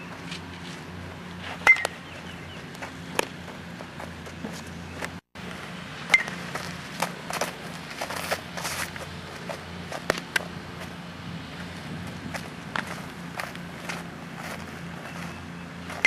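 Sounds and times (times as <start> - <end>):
footsteps and scuffs on dirt: 0.0 - 16.0
steady low hum: 0.0 - 16.0
bat hitting baseball: 1.6 - 2.0.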